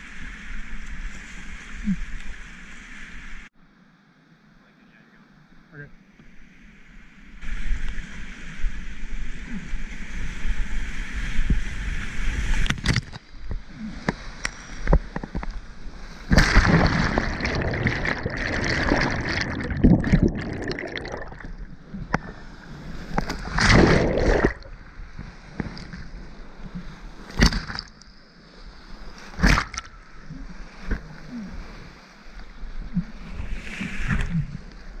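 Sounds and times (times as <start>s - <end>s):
water crashing over camera: 16.2s - 22.2s, 23.0s - 25.0s, 29.4s - 29.9s
water slapping camera: 16.3s - 22.3s, 23.1s - 24.8s, 27.3s - 28.0s, 29.4s - 29.9s.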